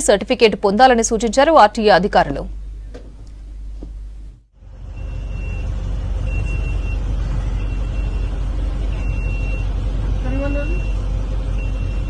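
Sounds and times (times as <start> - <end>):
bus engine rumbling: 0.0 - 12.0
high electronic warning beep: 4.9 - 7.0, 7.6 - 11.0.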